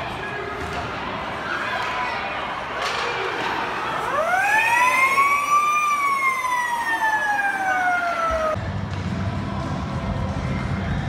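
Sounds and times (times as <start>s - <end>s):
siren winding up and down: 4.1s - 8.6s.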